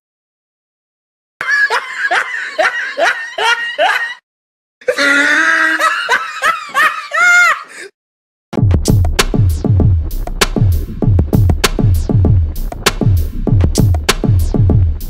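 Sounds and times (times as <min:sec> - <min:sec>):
high-pitched laughing sound effect: 0:01.4 - 0:04.2, 0:04.8 - 0:07.8.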